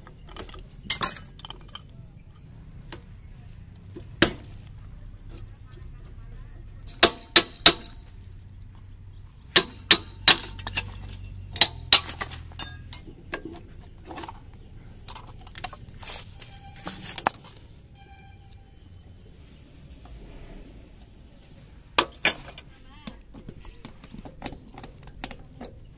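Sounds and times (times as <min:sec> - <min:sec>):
metal tools clinking on steel frame: 0:00.0 - 0:02.6, 0:09.6 - 0:18.2, 0:22.0 - 0:22.7
light clicks and rattles: 0:00.0 - 0:03.1, 0:10.2 - 0:17.7.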